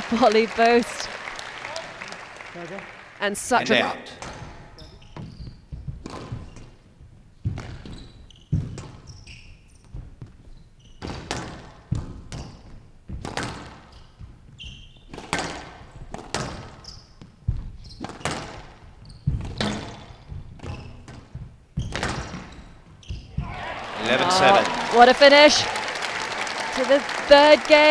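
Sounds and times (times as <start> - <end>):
shoe squeaks on court: 4.2 - 6.8, 7.4 - 11.5, 13.8 - 15.6, 16.3 - 23.4
squash ball cracking off rackets: 15.1 - 16.8.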